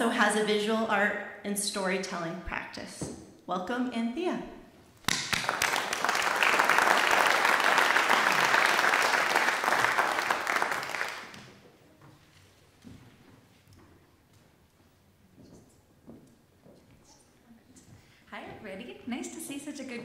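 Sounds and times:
crowd applauding: 5.1s - 11.5s.

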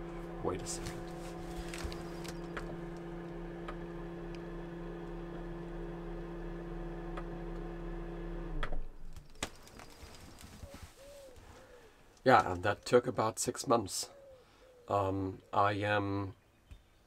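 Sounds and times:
fridge compressor humming: 0.0s - 10.6s.

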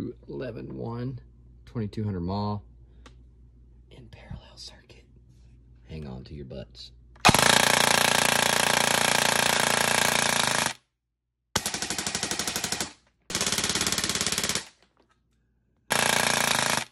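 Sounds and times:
airsoft rifle firing full auto: 7.2s - 10.8s, 11.6s - 14.8s, 15.9s - 16.9s.

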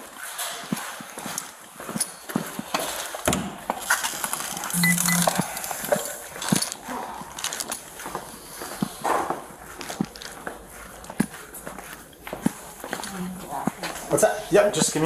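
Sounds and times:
short beep: 4.8s - 5.4s
footsteps on hard floor: 8.0s - 14.4s.

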